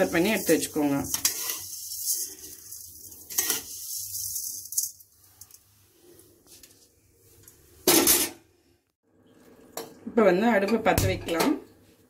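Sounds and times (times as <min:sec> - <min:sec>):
metal spatula scraping a pan: 0:00.0 - 0:05.8.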